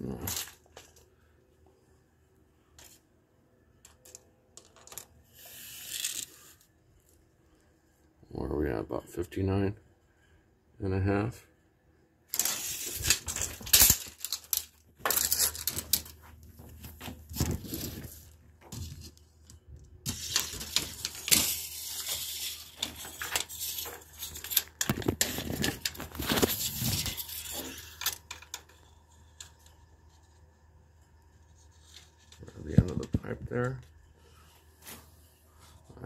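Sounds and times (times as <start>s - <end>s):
tape measure scraping and rattling: 4.8s - 6.6s, 12.3s - 19.2s, 20.0s - 30.3s.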